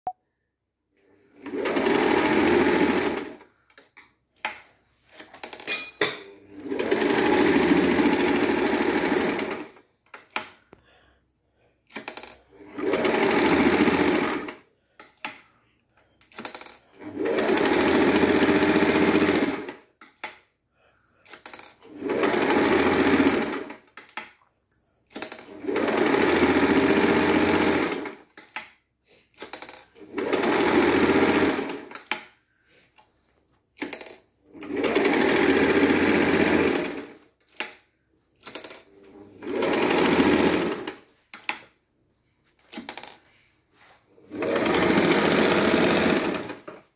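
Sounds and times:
sewing machine stitching: 0:01.0 - 0:03.7, 0:04.4 - 0:10.6, 0:11.9 - 0:15.5, 0:16.3 - 0:20.4, 0:21.2 - 0:24.3, 0:25.1 - 0:28.7, 0:29.4 - 0:32.3, 0:33.8 - 0:37.8, 0:38.4 - 0:41.8, 0:44.2 - 0:46.9.

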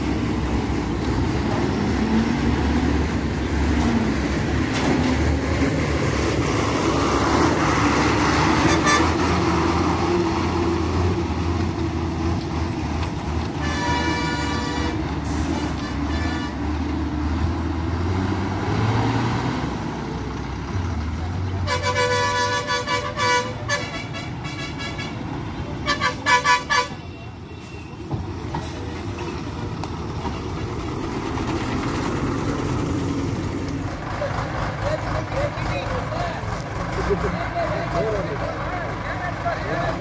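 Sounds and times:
diesel engines rumbling: 0:00.0 - 0:40.0
vehicle horn tooting: 0:13.6 - 0:15.0, 0:21.7 - 0:25.0, 0:25.9 - 0:27.0.

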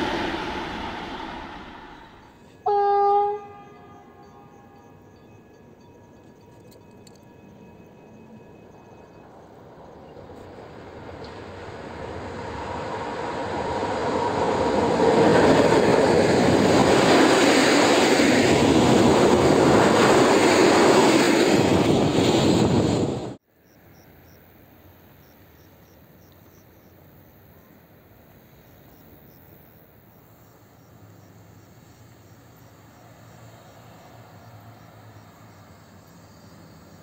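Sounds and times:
crickets chirping: 0:00.0 - 0:10.7, 0:23.5 - 0:37.0
freight train rumbling on rails: 0:00.0 - 0:23.4, 0:30.5 - 0:37.0.

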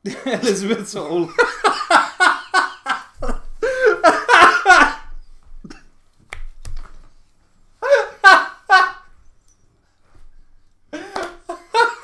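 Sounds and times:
men laughing: 0:00.0 - 0:05.2, 0:07.8 - 0:09.2, 0:10.9 - 0:12.0.

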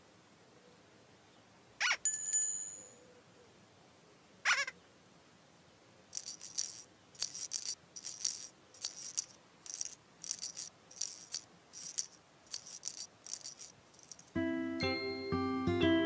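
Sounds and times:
shaken rattle: 0:06.1 - 0:14.4.

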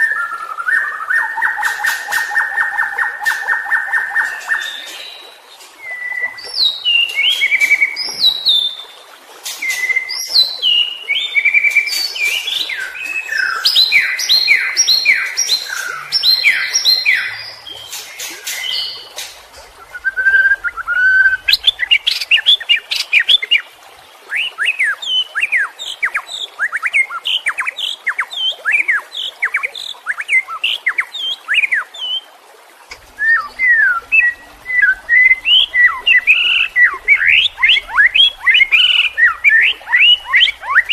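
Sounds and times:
songbird singing: 0:00.0 - 0:23.7, 0:32.9 - 0:40.9.

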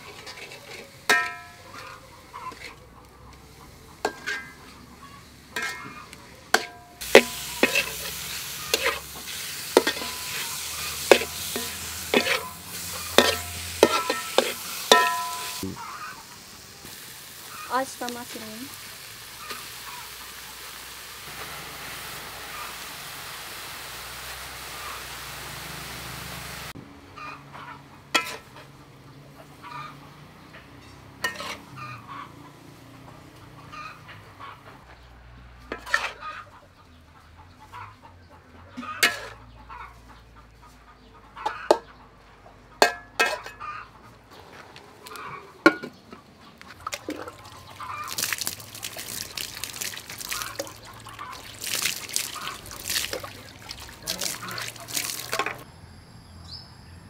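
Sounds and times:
metal spatula scraping wok: 0:00.0 - 0:15.6, 0:19.3 - 0:19.9, 0:28.1 - 0:28.8, 0:30.6 - 0:32.1, 0:35.6 - 0:36.3, 0:38.8 - 0:39.4, 0:42.8 - 0:43.7, 0:53.9 - 0:55.6
chickens clucking: 0:00.0 - 0:21.5, 0:22.3 - 0:23.4, 0:24.6 - 0:55.7
water pouring and splashing: 0:05.5 - 0:26.8, 0:46.7 - 0:55.7.

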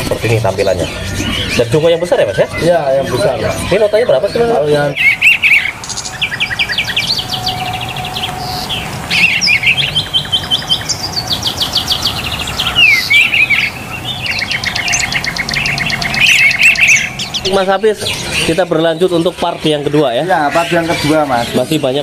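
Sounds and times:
songbird singing trills: 0:00.0 - 0:22.0.

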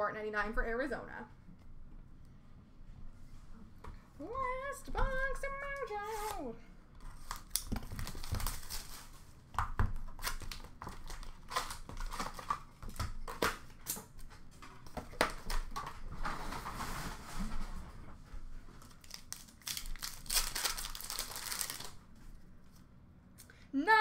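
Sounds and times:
plastic wrapping crinkling and tearing: 0:07.1 - 0:09.3, 0:10.0 - 0:13.6, 0:18.8 - 0:22.0.

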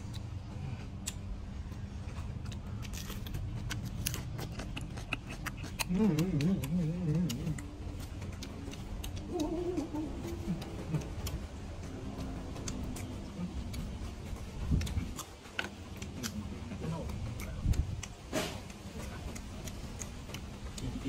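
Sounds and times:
man chewing crunchy vegetables: 0:00.0 - 0:21.0
man humming: 0:05.8 - 0:07.8, 0:09.2 - 0:11.4.

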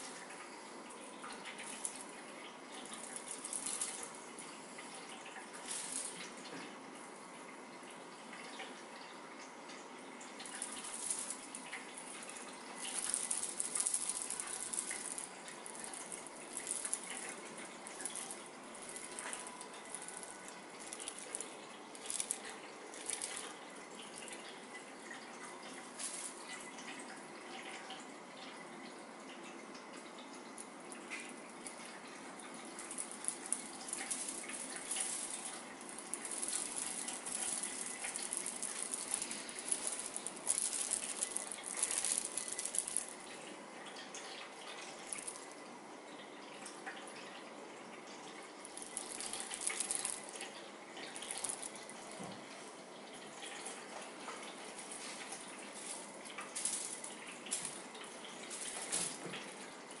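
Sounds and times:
rustling and crackling: 0:01.4 - 0:06.7, 0:10.4 - 0:24.5, 0:25.8 - 0:27.0, 0:31.1 - 0:43.5, 0:45.0 - 0:45.6, 0:48.6 - 0:52.6, 0:54.3 - 1:00.0.

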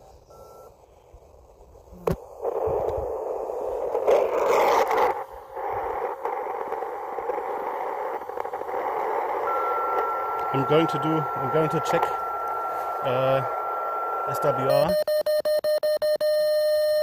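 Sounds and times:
faint carrier tone: 0:00.0 - 0:01.2, 0:05.5 - 0:15.2
radio static hiss: 0:00.0 - 0:14.9
short beep: 0:09.5 - 0:17.0.

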